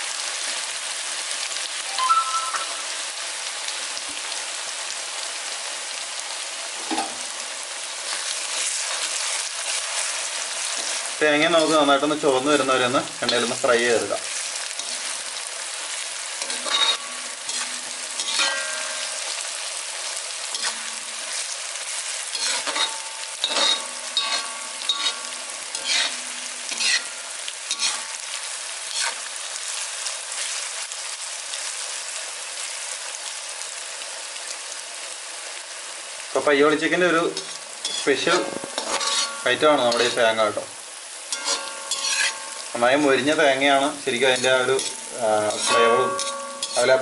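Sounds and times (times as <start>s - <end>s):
coconut sizzling in hot oil: 0.0s - 47.0s
steel spoon scraping pan: 14.3s - 15.2s, 16.4s - 19.2s, 20.5s - 21.5s, 22.3s - 28.2s, 28.9s - 29.2s, 37.4s - 40.2s, 41.3s - 42.6s, 44.3s - 47.0s.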